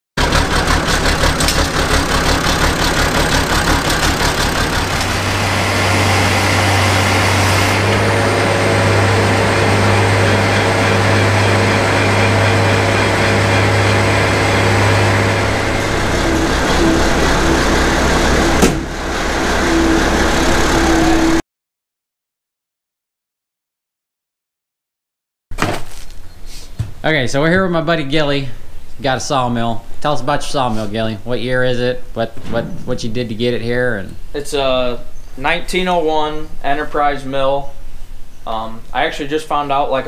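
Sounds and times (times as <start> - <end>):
tractor diesel engine running: 0.2 - 21.4
sharp knock: 18.6 - 18.9.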